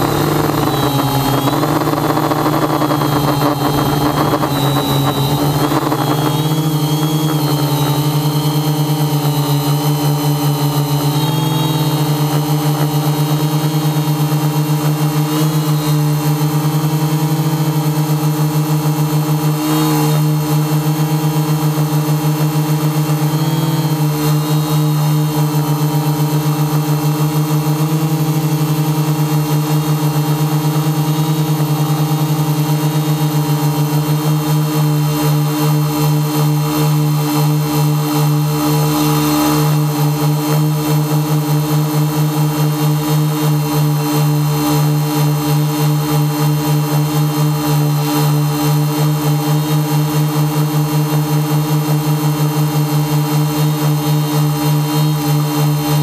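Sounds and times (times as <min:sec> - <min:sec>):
drone motors and propellers humming: 0:00.0 - 0:18.3.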